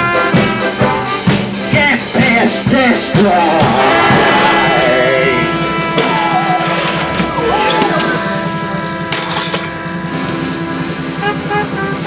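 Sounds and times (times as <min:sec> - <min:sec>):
steady drum beat: 0:00.0 - 0:12.0
person singing: 0:03.1 - 0:08.9.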